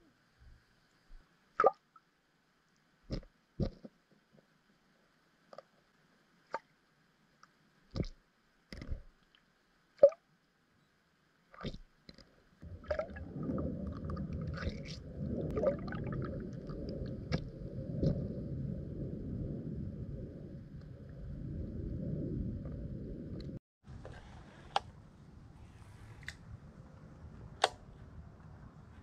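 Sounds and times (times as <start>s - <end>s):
sharp clicks and knocks underwater: 3.1s - 4.0s, 7.4s - 10.2s, 11.6s - 18.4s
low rumble of water: 11.2s - 29.0s.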